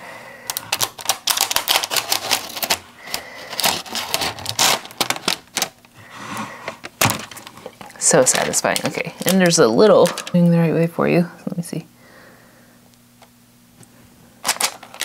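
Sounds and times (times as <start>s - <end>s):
plastic film peeling crackle: 0.5s - 6.0s, 6.9s - 10.4s, 14.4s - 15.0s.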